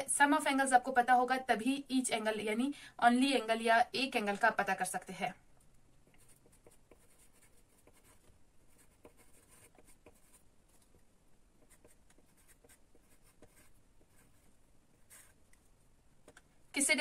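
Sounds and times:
pencil scratching on paper: 6.1s - 11.0s, 11.6s - 15.8s.

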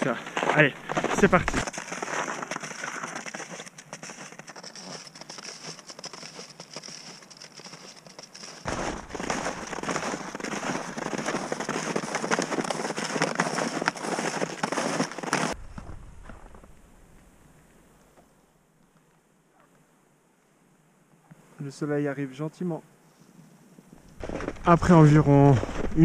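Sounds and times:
snowshoes crunching on snow: 0.0s - 16.8s, 24.0s - 26.0s.

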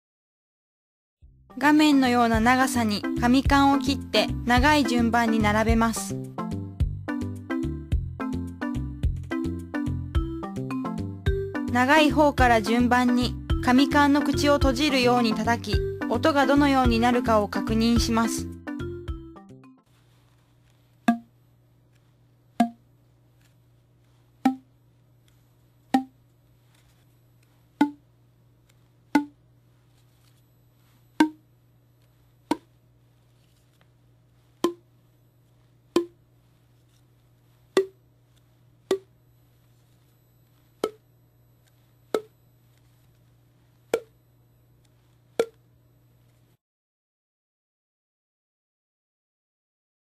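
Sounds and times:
hollow pops of slapped tubes: 21.0s - 21.3s, 22.6s - 22.8s, 24.4s - 24.7s, 25.9s - 26.2s, 27.8s - 28.0s, 29.1s - 29.4s, 31.2s - 31.4s, 32.4s - 32.8s, 34.6s - 34.8s, 35.9s - 36.2s, 37.7s - 38.0s, 38.9s - 39.1s, 42.1s - 42.4s, 43.9s - 44.2s.

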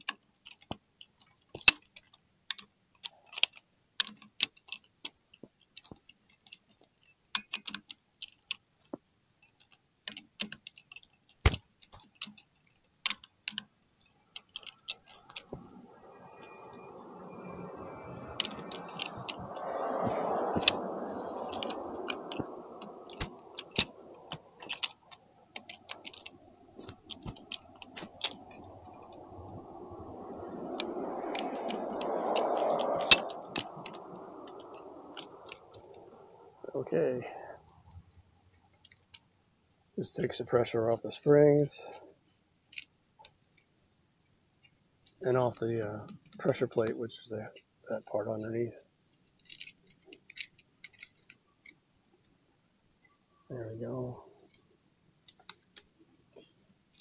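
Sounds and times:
soft rushing noise: 14.0s - 38.8s, 53.1s - 54.7s.

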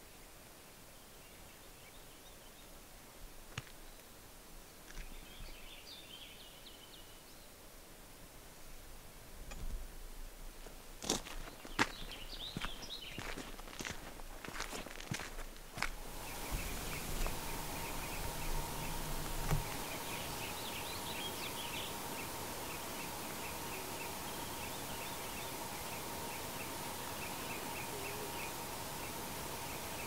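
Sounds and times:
steady hiss: 0.0s - 30.0s
low rumble: 16.0s - 21.8s
faint high chirps: 16.0s - 30.0s.

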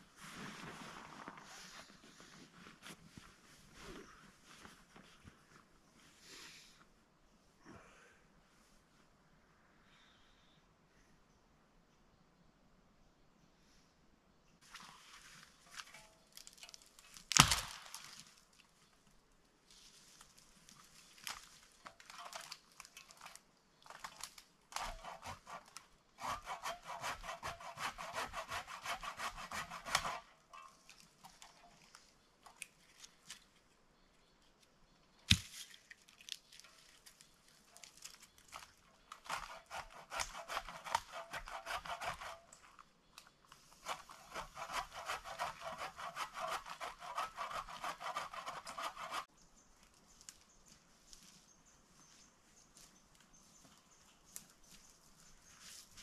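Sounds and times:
hand saw cutting dry branches: 22.0s - 31.6s, 38.5s - 42.6s, 43.7s - 49.3s.

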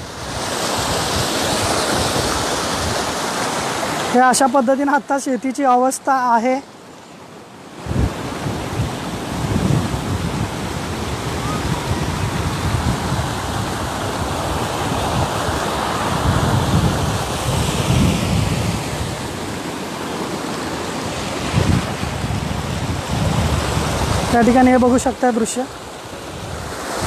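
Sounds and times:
wind buffeting microphone: 0.0s - 3.7s, 7.8s - 25.2s, 25.8s - 27.0s
floodwater rushing: 0.0s - 27.0s.

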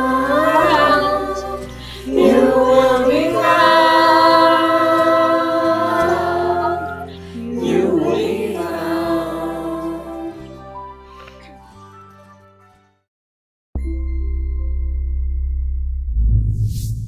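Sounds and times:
children's choir singing harmony: 0.0s - 10.8s.

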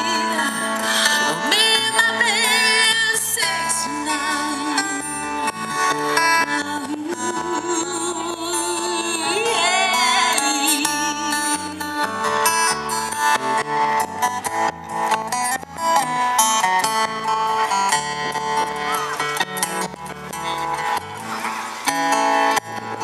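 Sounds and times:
woman singing into microphone: 0.0s - 12.9s
acoustic guitar: 0.0s - 23.0s.

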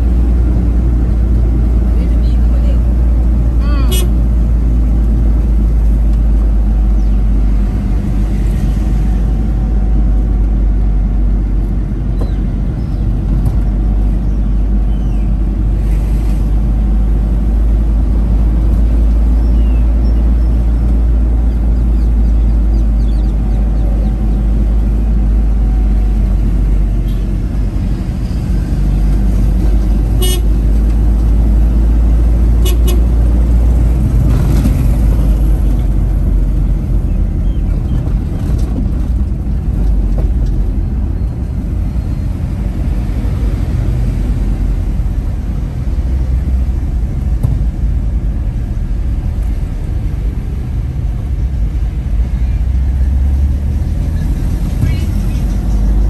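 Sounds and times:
car driving low rumble: 0.0s - 56.0s
vehicle horn toots: 3.8s - 4.2s, 30.2s - 30.5s, 32.6s - 33.1s.

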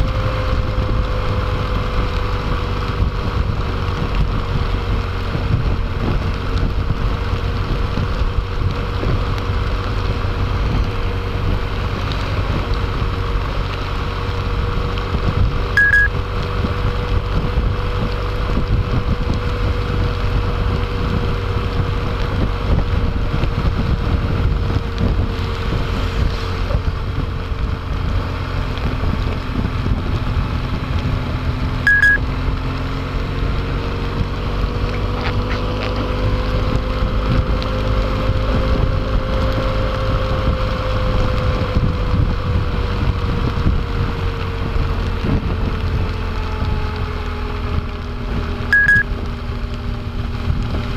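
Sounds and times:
faint motorcycle engine drone: 0.0s - 50.9s
wind rushing over microphone: 0.0s - 50.9s
short beep: 15.8s - 16.1s, 31.9s - 32.2s, 48.8s - 49.1s.

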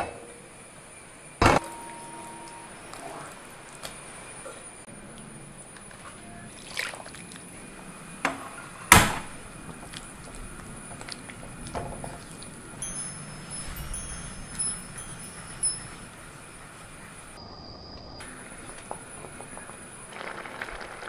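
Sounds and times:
thick mixture sloshing: 5.9s - 13.4s.

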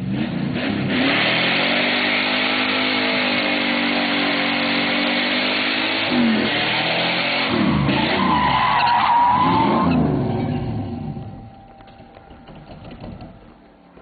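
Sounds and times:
car engine at high revs: 0.0s - 11.7s
tyres hissing and squealing: 7.9s - 10.7s.

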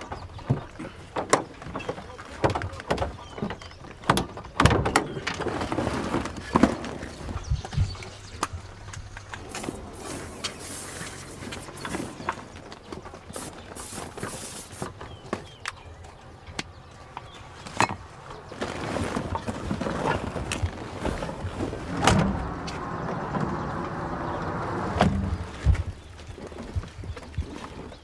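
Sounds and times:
plastic sack rustling: 5.4s - 7.4s, 9.4s - 14.9s, 18.4s - 21.9s
cargo knocking and thumping: 19.1s - 24.0s, 24.8s - 25.9s.

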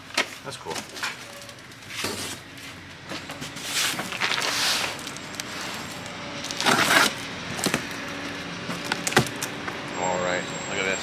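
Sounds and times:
box cutter slitting packing tape: 3.6s - 7.8s
cardboard box rustling scrapes: 3.6s - 7.8s.

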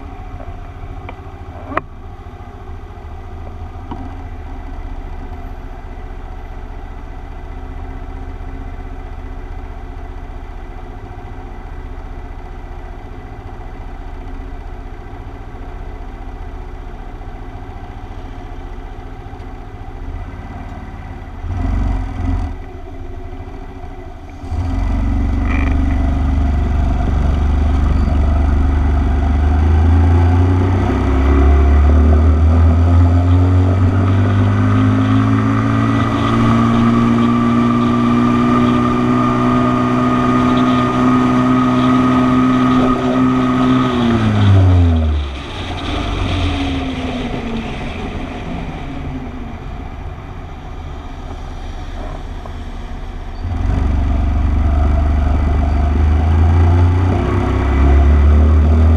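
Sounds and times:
motorcycle accelerating: 24.1s - 58.9s
motorcycle throttle blips: 25.3s - 29.2s.

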